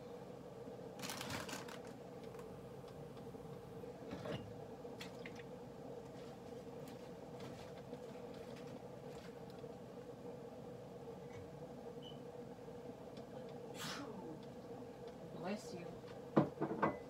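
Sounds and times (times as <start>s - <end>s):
faint crackles: 1.0s - 3.3s.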